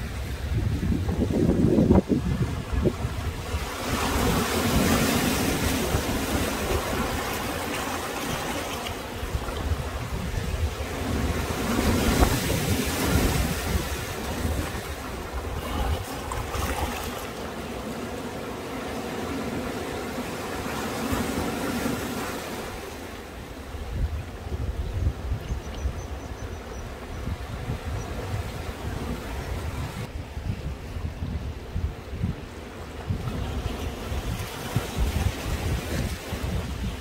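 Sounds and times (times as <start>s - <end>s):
wind rumbling on microphone: 0.0s - 17.6s, 20.5s - 37.0s
sea waves washing in: 0.0s - 24.8s.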